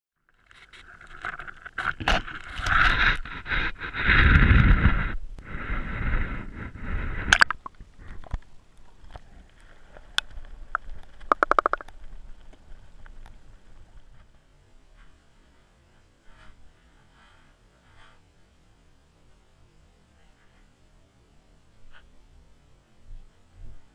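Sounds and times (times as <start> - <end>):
rattle of ticks: 7.2 - 14.2
sharp clicks: 10.2 - 12.0.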